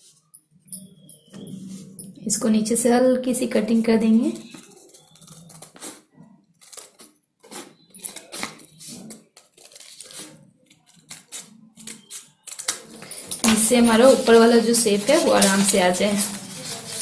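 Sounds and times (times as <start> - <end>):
scissors snipping paper: 4.4 - 12.9.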